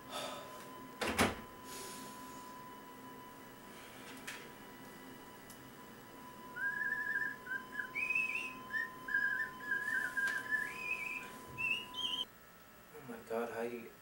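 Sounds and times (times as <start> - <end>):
faint steady high tone: 4.7 - 12.3
person whistling a tune: 6.6 - 12.2.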